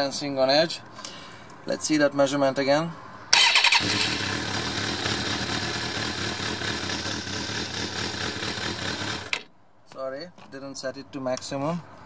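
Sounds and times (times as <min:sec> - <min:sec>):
motorbike engine starting and idling: 0:03.3 - 0:09.5.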